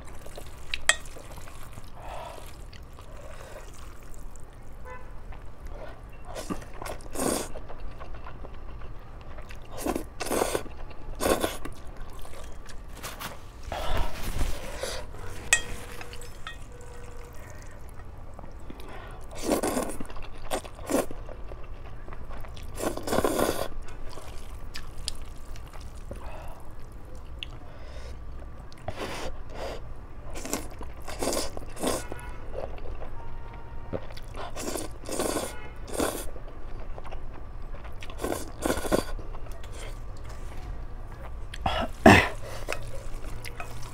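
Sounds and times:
person chewing: 0.0s - 4.5s, 5.3s - 27.6s, 30.4s - 33.1s, 34.0s - 40.5s, 41.1s - 43.9s
person slurping noodles: 1.6s - 4.1s, 22.8s - 23.7s, 38.2s - 39.1s.

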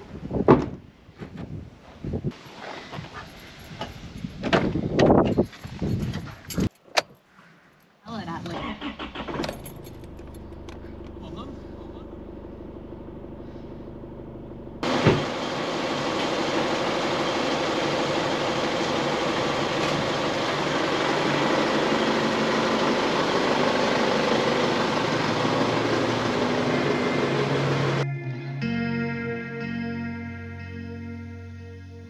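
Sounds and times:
engine and tyre noise driving off: 8.7s - 28.0s
diesel engine humming: 9.2s - 32.0s.

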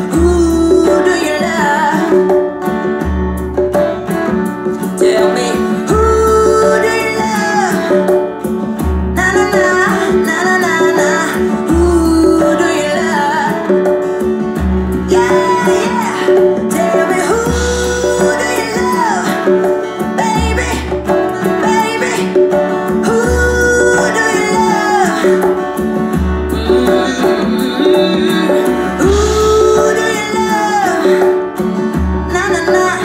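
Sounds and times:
song with singing and guitar: 0.0s - 33.0s
deep bass note: 26.4s - 29.4s.

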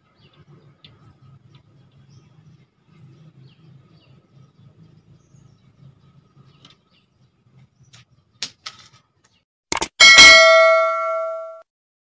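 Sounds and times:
quick clicks: 9.7s - 10.0s
bell ding: 10.0s - 11.6s.

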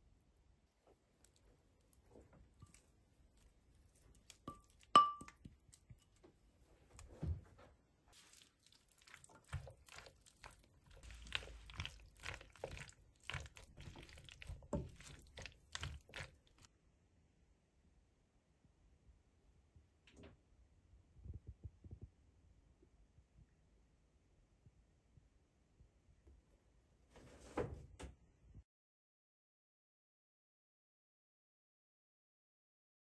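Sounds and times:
utensil clinking against pan: 4.5s - 5.4s
spatula stirring food in pan: 8.1s - 16.7s.

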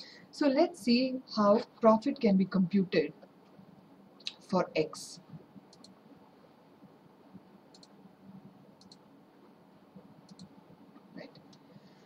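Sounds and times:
computer mouse clicks: 5.7s - 6.0s, 7.7s - 8.0s, 8.8s - 9.0s, 10.2s - 10.6s.

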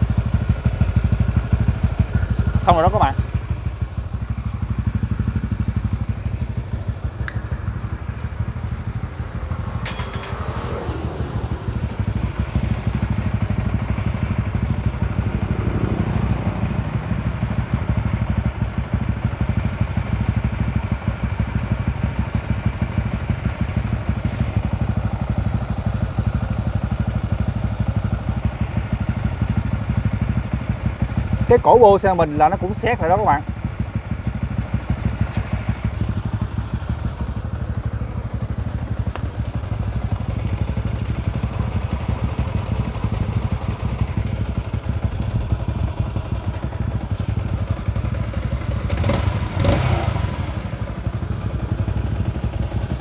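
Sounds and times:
motorcycle engine idling: 0.0s - 53.0s
short metallic clink: 9.8s - 10.8s.

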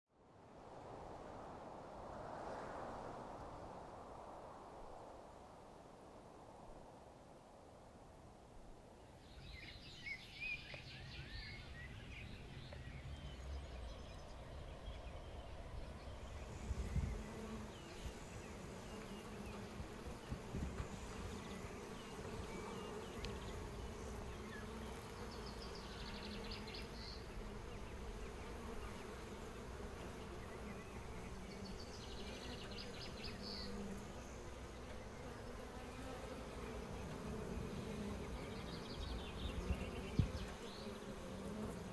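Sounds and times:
honeybees buzzing: 15.5s - 41.9s.

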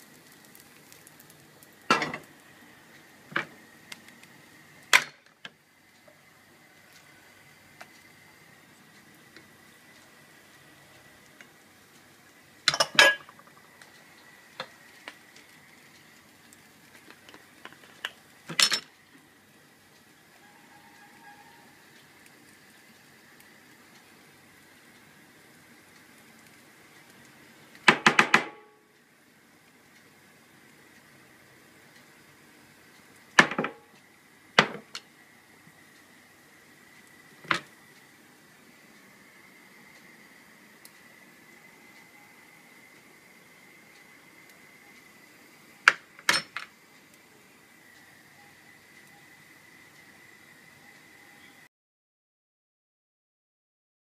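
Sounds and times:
dishes clattering: 1.9s - 2.2s, 12.7s - 13.5s
kitchenware clicks and taps: 1.9s - 2.2s, 12.7s - 13.6s
clinks on ceramic plate: 12.7s - 13.4s.

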